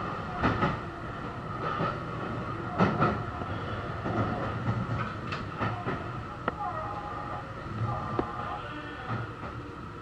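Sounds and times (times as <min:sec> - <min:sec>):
electric train running with whine: 0:00.0 - 0:10.0.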